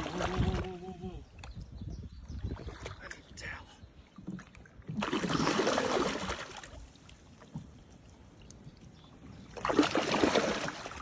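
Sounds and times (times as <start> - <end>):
fish thrashing water: 4.2 - 8.0, 9.5 - 11.0.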